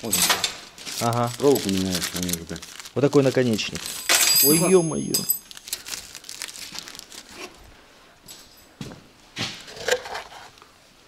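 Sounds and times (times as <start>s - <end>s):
wrapper crinkling and tearing: 0.0s - 7.6s.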